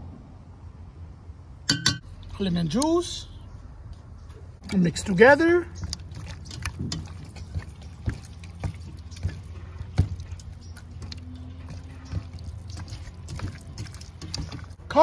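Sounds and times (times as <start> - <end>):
wet squelching of meat: 4.6 - 14.9.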